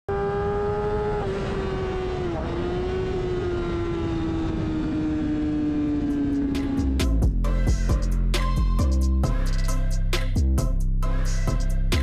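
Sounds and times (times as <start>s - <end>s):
motorcycle engine at high revs: 0.1s - 7.0s.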